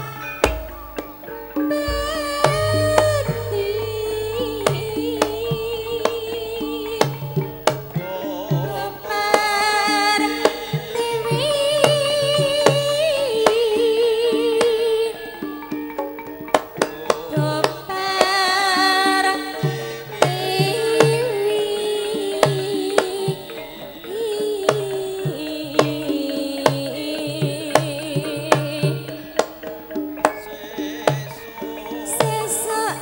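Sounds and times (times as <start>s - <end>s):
hand drum slaps and strokes: 1.8s - 8.0s
person singing wavering melody: 1.8s - 8.2s
sustained gamelan tones: 1.8s - 9.1s.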